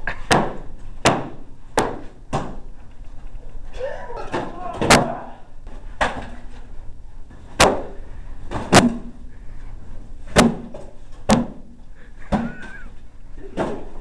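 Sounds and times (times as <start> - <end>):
swords striking cardboard: 10.3 - 11.6.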